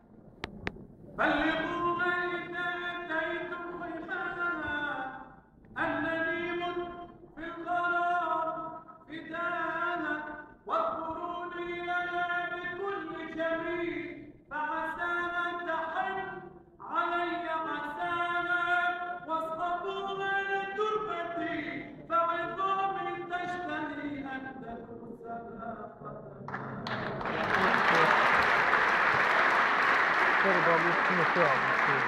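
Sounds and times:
man singing amplified: 1.2 - 26.5.

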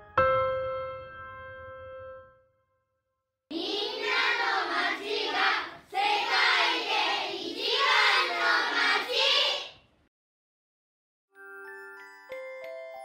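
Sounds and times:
piano note: 0.0 - 2.8
children's choir singing: 3.5 - 9.8.

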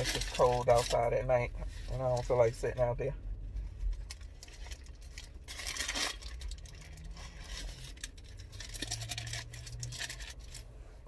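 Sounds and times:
paper wrapper rustling: 0.0 - 1.1, 3.8 - 10.6.

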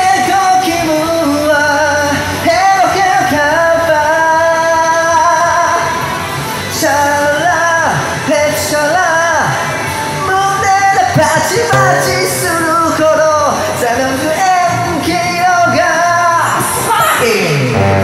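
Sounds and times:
man singing into microphone: 10.4 - 14.4
backing track music: 11.2 - 13.2.

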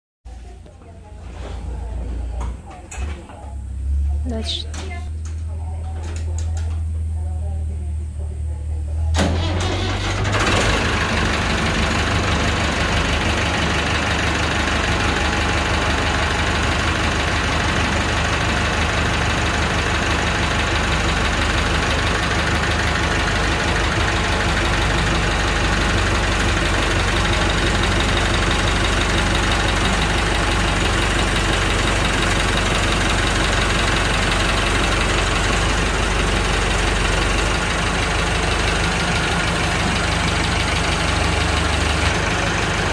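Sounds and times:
diesel tractor engine clattering: 9.2 - 42.9.

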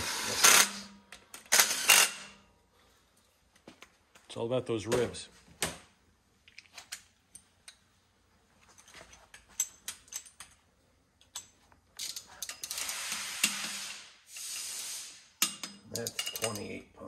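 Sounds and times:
torque wrench ratcheting: 0.0 - 0.8, 1.4 - 2.3
hand tools clicking and clinking: 8.6 - 14.6, 15.4 - 16.8.

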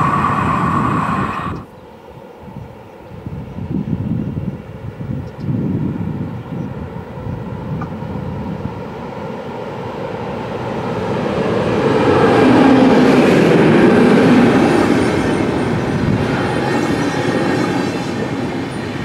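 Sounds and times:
electric locomotive passing: 0.0 - 2.9, 6.7 - 19.0.

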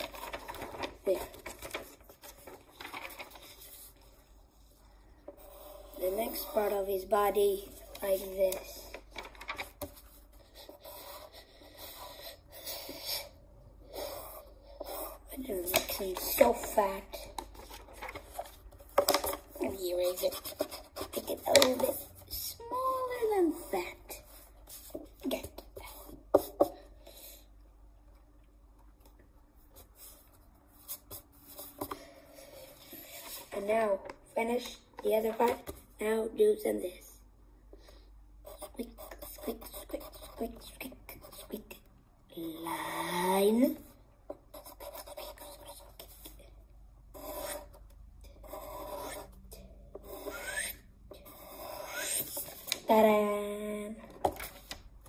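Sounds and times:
pencil scratching on paper: 3.3 - 8.9, 9.7 - 22.5, 23.2 - 27.2, 29.8 - 33.7, 38.4 - 41.8, 42.5 - 46.4, 47.1 - 52.7.

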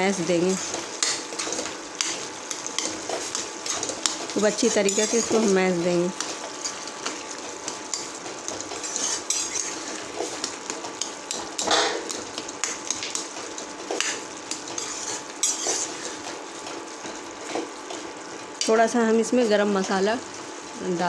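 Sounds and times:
ladle scraping a metal pot: 4.7 - 5.5, 7.9 - 10.4, 14.0 - 16.3.

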